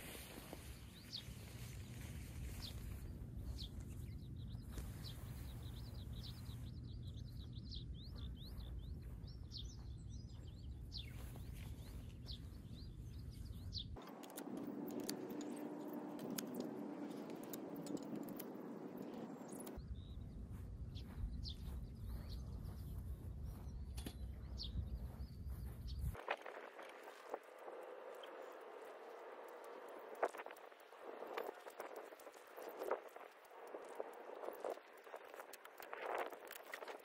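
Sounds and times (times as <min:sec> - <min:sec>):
small birds chirping: 0:00.0 - 0:37.0
tent poles rustling and clicking: 0:14.0 - 0:19.8, 0:26.2 - 0:37.0.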